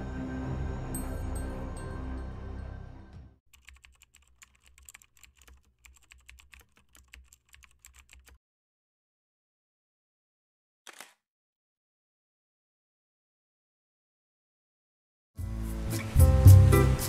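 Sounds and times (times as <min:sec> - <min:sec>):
dark background music: 0:00.0 - 0:03.3
rapid keystroke clicks: 0:03.5 - 0:08.4.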